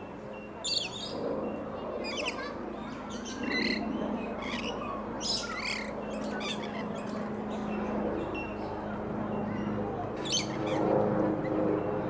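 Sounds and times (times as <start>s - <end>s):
lorikeets calling: 0.6s - 1.2s, 2.0s - 7.7s, 10.2s - 10.9s.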